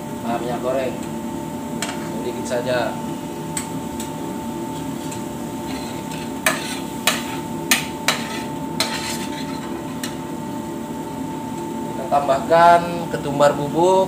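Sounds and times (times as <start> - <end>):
steady hum: 0.0 - 14.0
metal spoon scraping frying pan: 5.7 - 10.1.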